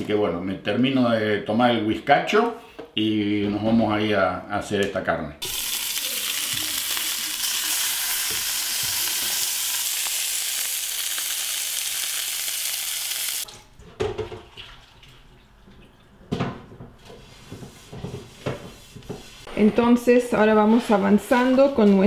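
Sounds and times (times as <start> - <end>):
meat sizzling in a frying pan: 5.4 - 13.5.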